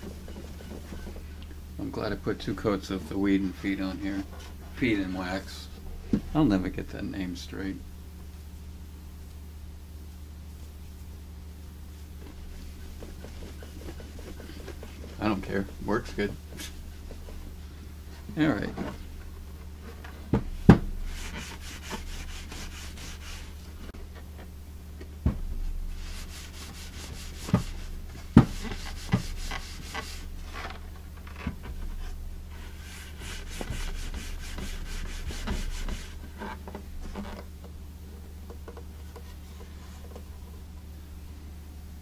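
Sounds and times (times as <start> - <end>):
cloth rubbing on wood: 0.0 - 5.5, 12.1 - 19.1, 20.9 - 23.9, 25.9 - 30.7, 32.5 - 37.4.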